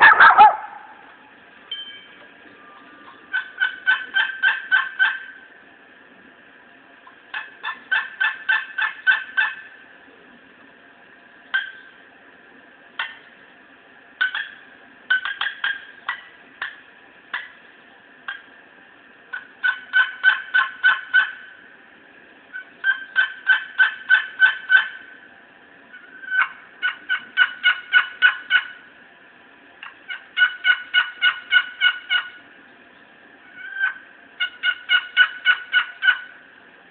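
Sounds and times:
turkey call clucks: 0.0 - 1.1, 3.0 - 5.4, 7.0 - 9.8, 11.5 - 11.9, 13.0 - 13.3, 14.2 - 17.6, 18.3 - 18.5, 19.3 - 21.6, 22.5 - 25.1, 25.9 - 28.8, 29.8 - 32.4, 33.4 - 36.4
turkey call yelps: 0.0 - 1.1, 2.8 - 5.4, 7.3 - 9.7, 14.2 - 17.5, 19.3 - 21.6, 22.5 - 25.1, 25.9 - 28.8, 29.8 - 32.4, 33.4 - 36.4.

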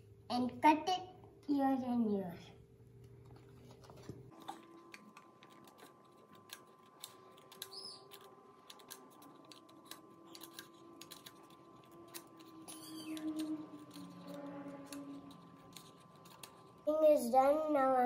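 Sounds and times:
scissors snipping paper: 3.7 - 17.3.

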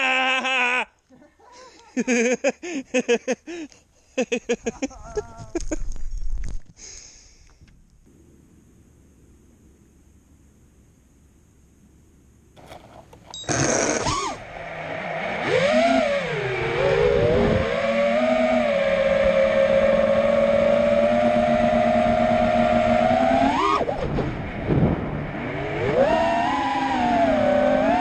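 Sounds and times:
drone motors whining: 13.4 - 28.0.

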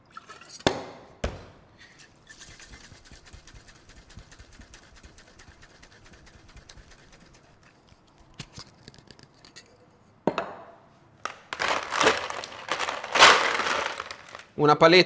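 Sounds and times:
cocktail shaker sloshing: 1.9 - 9.5.

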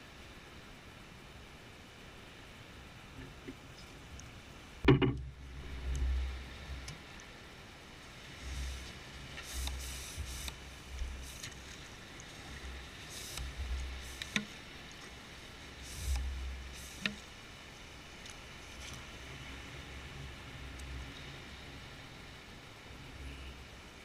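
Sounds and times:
wet sucking and splashing: 8.4 - 15.0.

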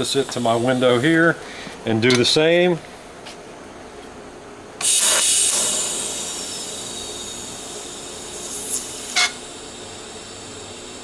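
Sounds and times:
welding torch arc hiss: 0.0 - 1.4, 4.8 - 11.0.

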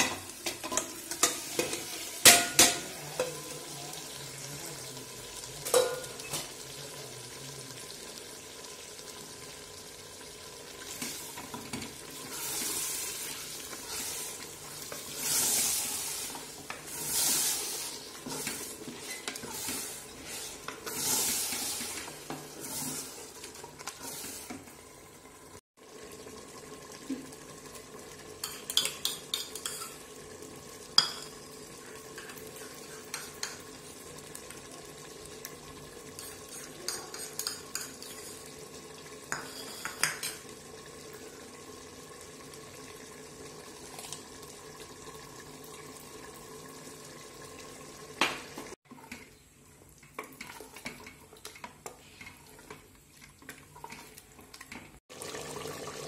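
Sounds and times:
food sizzling in a pot: 0.0 - 56.0
utensils clinking against pot: 5.7 - 6.5, 28.4 - 30.1, 36.1 - 38.5, 39.3 - 40.5
spoon scraping a pot: 10.9 - 24.6, 28.4 - 30.1, 36.1 - 38.6, 39.3 - 40.4, 50.2 - 54.8.

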